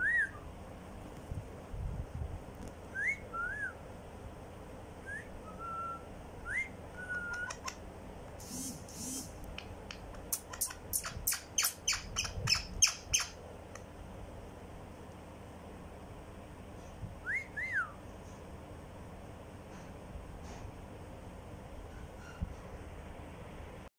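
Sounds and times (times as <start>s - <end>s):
harsh parakeet calls: 10.1s - 13.4s.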